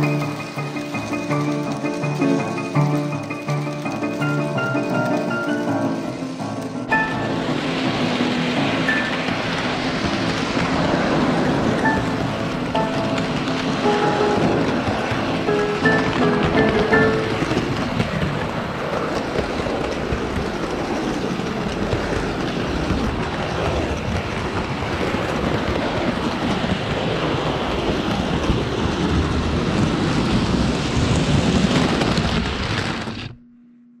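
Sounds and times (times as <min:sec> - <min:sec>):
model train rolling rattle: 0:00.0 - 0:33.3
rapid wheel clicks on rails: 0:00.0 - 0:33.3.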